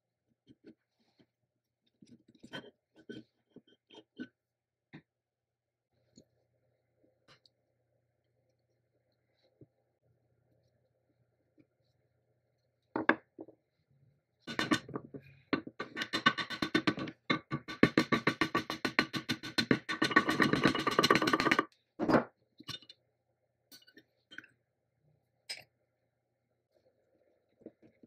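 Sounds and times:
hammer tapping on metal: 0:15.6 - 0:21.7.

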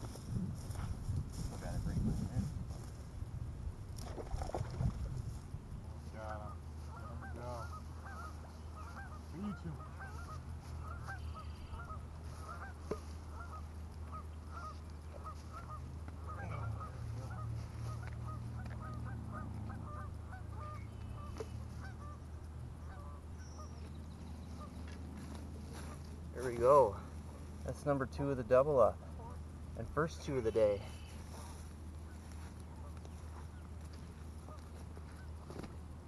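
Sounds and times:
steady low hum: 0:00.0 - 0:36.0
geese honking: 0:06.0 - 0:27.8, 0:28.7 - 0:35.7.

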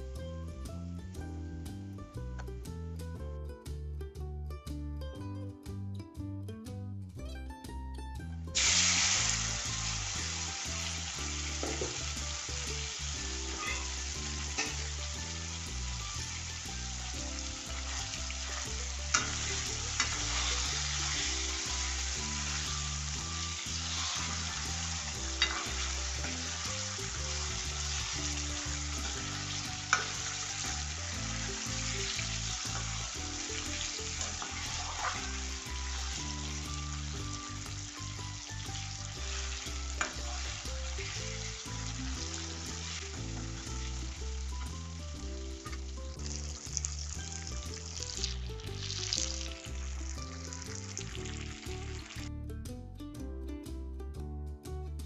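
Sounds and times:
fruit frying in hot oil: 0:08.6 - 0:52.3
metal ladle knocking against pan: 0:11.6 - 0:12.0.

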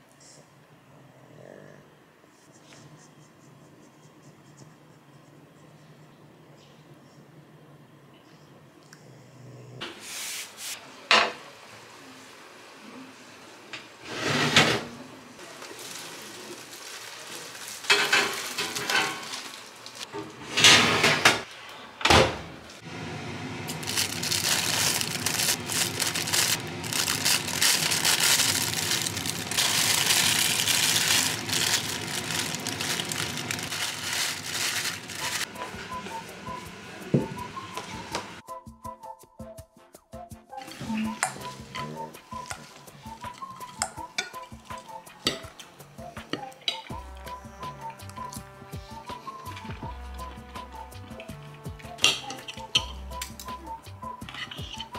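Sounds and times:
plastic bag crinkling: 0:15.6 - 0:20.1, 0:23.7 - 0:35.5
dishes clattering: 0:17.9 - 0:19.4, 0:52.0 - 0:53.0.

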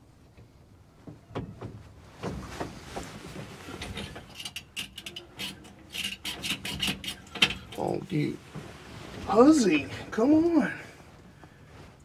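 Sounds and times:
rustling: 0:00.5 - 0:12.0
knocks and clunks in truck cab: 0:01.0 - 0:04.0.

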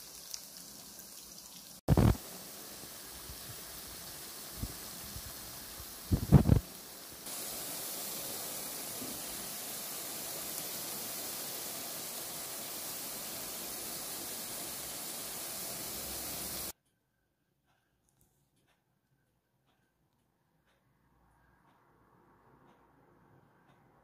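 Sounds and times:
oil sizzling in a pan: 0:00.0 - 0:16.8.

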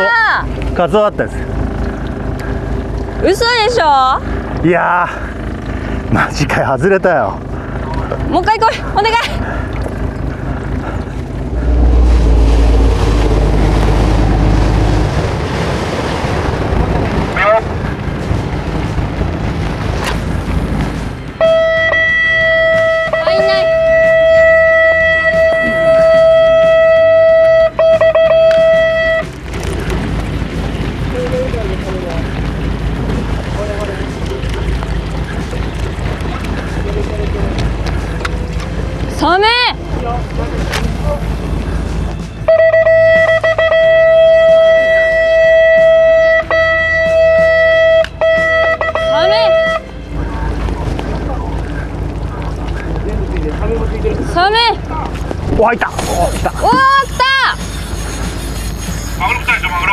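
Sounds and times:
boat noise: 0:00.0 - 0:59.9
wind: 0:00.0 - 0:59.9
electric guitar long note: 0:11.5 - 0:15.2.

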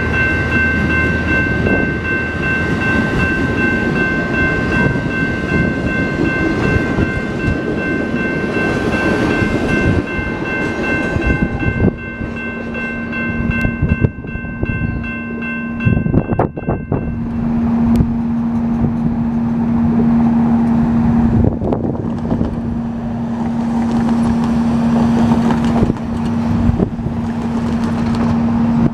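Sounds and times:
high ringing tones: 0:00.0 - 0:20.8
train wheels rumbling on track: 0:00.0 - 0:28.9.

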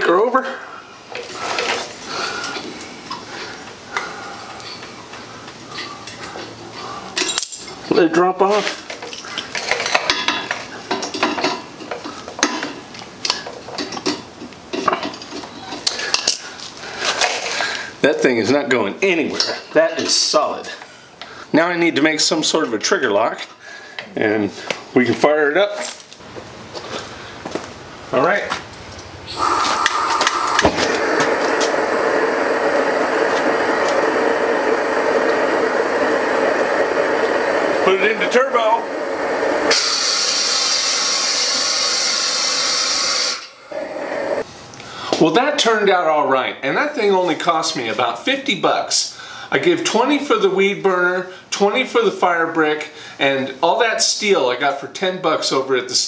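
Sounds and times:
gas hissing: 0:00.0 - 0:13.6, 0:29.2 - 0:45.2
burner flame rushing: 0:29.3 - 0:44.5
burner igniting pop: 0:29.4 - 0:38.2, 0:39.4 - 0:41.7.

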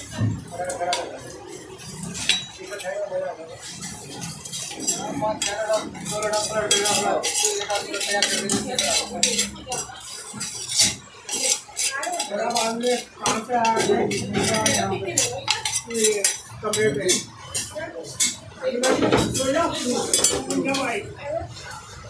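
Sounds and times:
metal blade scraping curd: 0:03.6 - 0:21.0.

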